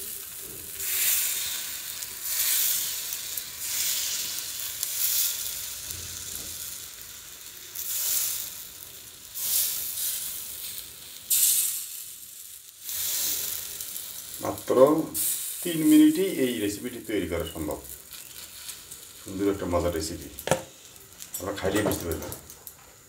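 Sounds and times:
batter sizzling in a pan: 0.0 - 23.0.

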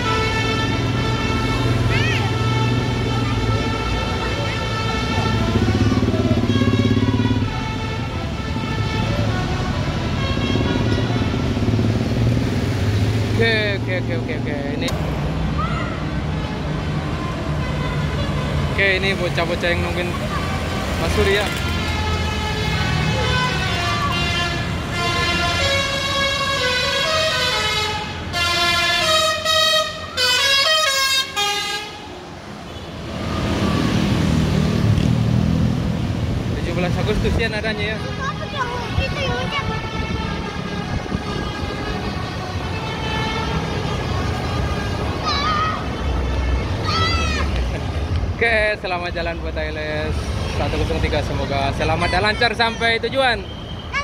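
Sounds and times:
musical bus horn: 0.0 - 11.7, 17.5 - 18.6, 21.4 - 32.1, 38.0 - 45.2
bus engine rumble: 14.4 - 18.8.

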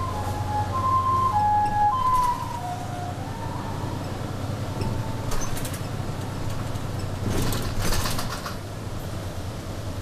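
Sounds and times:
ambulance siren: 0.0 - 5.7
bus engine running: 0.0 - 10.0.

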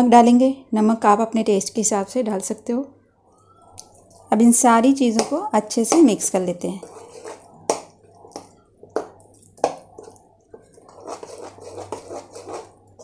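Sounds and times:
spoon tapping plastic bowl: 5.1 - 6.2, 7.6 - 12.6.

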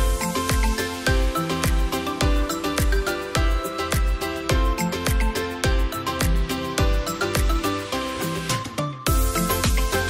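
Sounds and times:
melody over drum beat: 0.0 - 10.0.

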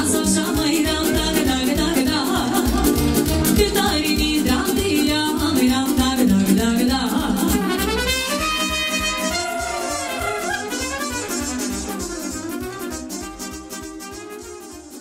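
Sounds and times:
person singing: 0.0 - 11.1
fast dance beat: 0.1 - 4.4, 7.6 - 14.2
violin: 7.3 - 15.0
saxophone: 7.5 - 15.0.

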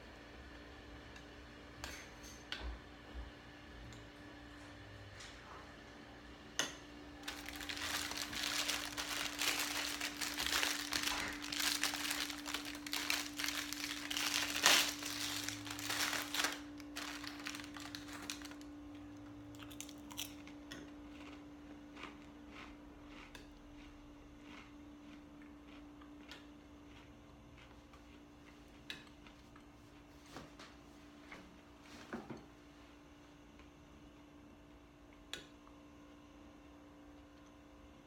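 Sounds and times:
faint steady hum: 0.0 - 38.0
paper crumpling: 7.2 - 18.6.

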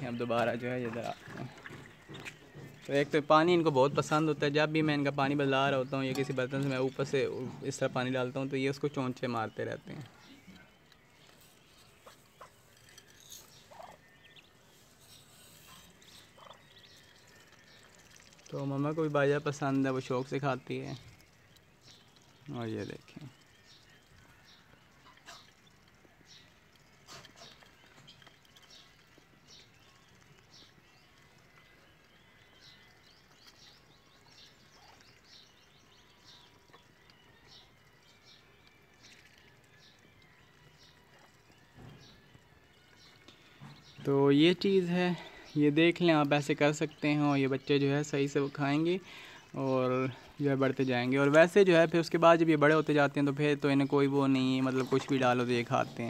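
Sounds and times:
ducklings peeping: 10.1 - 12.8, 13.5 - 18.5, 23.4 - 44.0.

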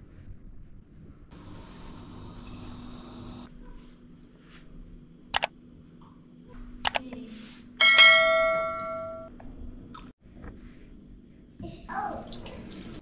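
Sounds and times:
bright bell ding: 7.8 - 9.3.

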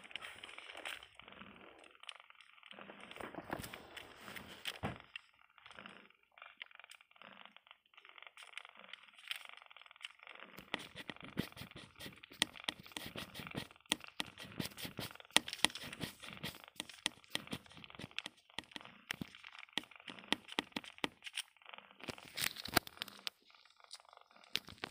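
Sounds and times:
cardboard box and cloth rustling: 3.0 - 5.1.

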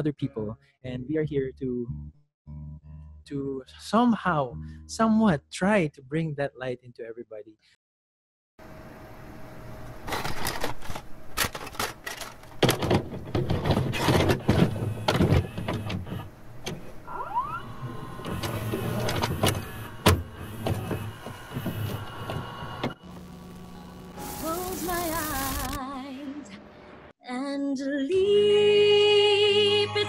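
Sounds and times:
whirring noise: 13.3 - 25.9.

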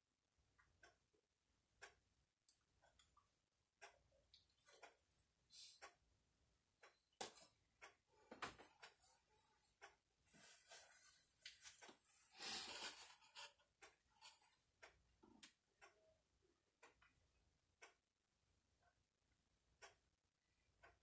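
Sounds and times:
paper towel rustling: 10.3 - 13.5.

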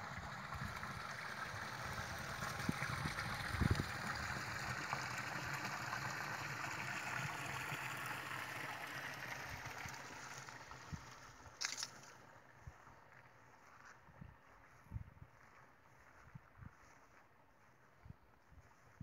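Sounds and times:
water trickling and gurgling: 0.0 - 12.8.

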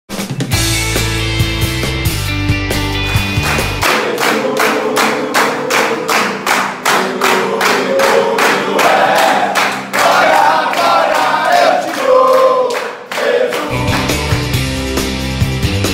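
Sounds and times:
music track: 0.2 - 12.4, 13.5 - 15.9
men clapping in unison: 3.0 - 14.8
voices chanting together: 3.8 - 14.6.

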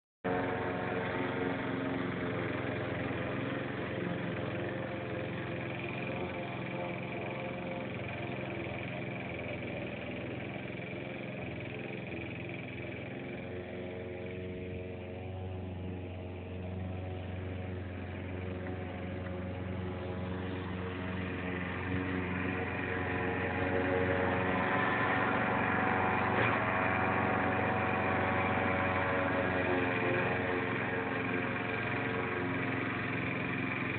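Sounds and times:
lawn mower engine cutting grass: 0.2 - 33.9.

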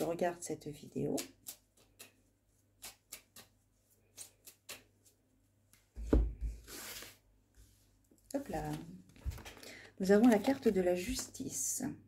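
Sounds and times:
cards thumping on wooden table: 6.0 - 6.6
cards being shuffled: 6.5 - 7.2, 8.5 - 11.4.

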